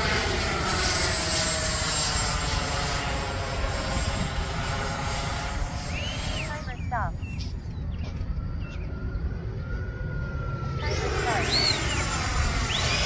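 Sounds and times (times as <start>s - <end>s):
model jet fan whining: 0.0s - 13.0s
thin steady whistle: 5.8s - 6.7s, 7.4s - 13.0s.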